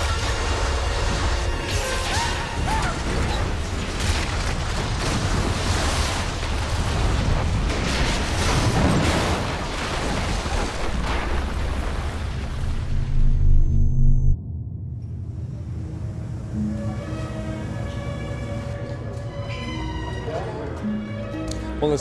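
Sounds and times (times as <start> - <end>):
music: 0.0 - 3.8, 14.4 - 22.0
crashing water and falling masonry: 0.0 - 13.0.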